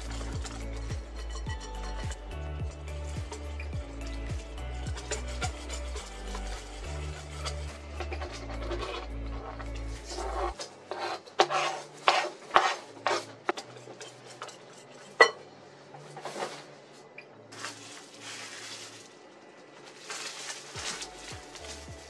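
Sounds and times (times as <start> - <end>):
wire whisk scraping glass bowl: 0.0 - 15.4
plastic wrap crinkling: 17.5 - 22.0.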